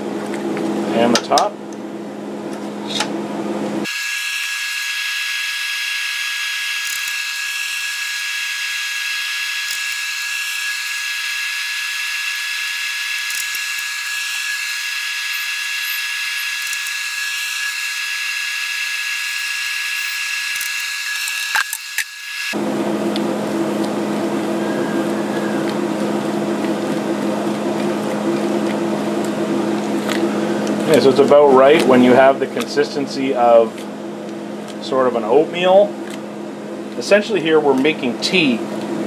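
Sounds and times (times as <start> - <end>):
high-pitched electric whine: 3.8 - 26.7.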